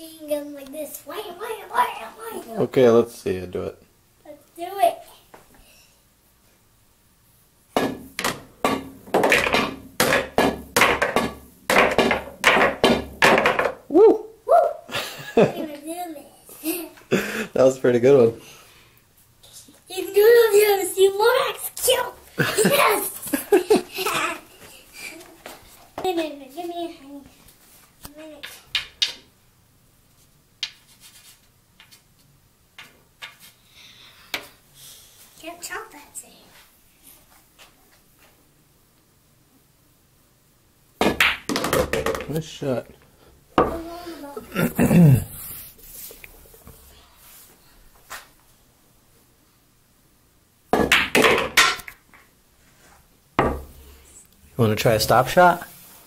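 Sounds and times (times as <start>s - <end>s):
pool balls clacking: 7.8s - 13.8s, 41.0s - 42.4s, 50.7s - 52.2s
balls dropping into pocket: 41.0s - 42.4s.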